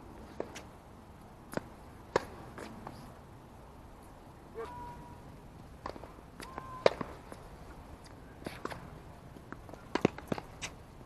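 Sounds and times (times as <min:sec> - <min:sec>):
racket hitting tennis ball: 0:01.5 - 0:03.0, 0:05.8 - 0:07.4, 0:09.5 - 0:10.8
tennis ball bouncing: 0:01.5 - 0:03.0, 0:05.8 - 0:07.4, 0:08.0 - 0:10.8.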